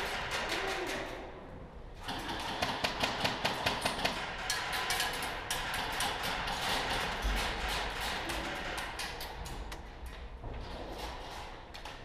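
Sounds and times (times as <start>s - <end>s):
airsoft guns firing rapidly: 2.0s - 4.3s.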